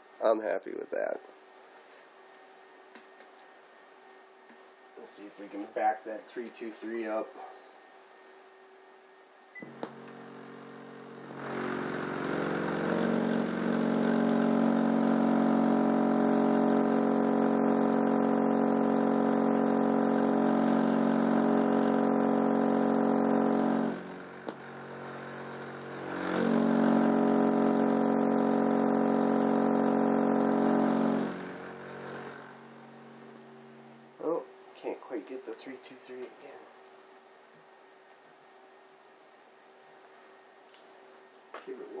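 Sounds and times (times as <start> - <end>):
subwoofer low test tone: 9.6 - 34.4.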